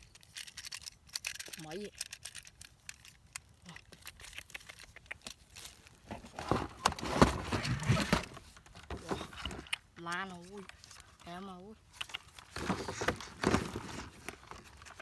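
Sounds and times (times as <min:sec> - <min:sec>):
cardboard box rustling and crinkling: 0:03.9 - 0:09.7, 0:12.2 - 0:15.0.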